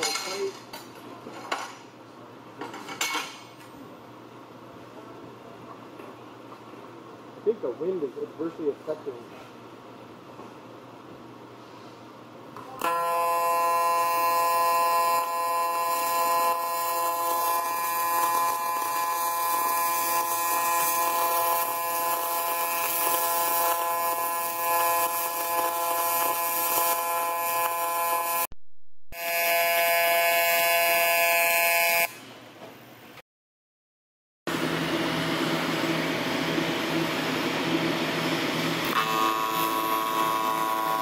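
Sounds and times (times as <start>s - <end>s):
welding arc buzzing: 12.8s - 28.5s, 29.1s - 32.2s, 34.5s - 41.0s.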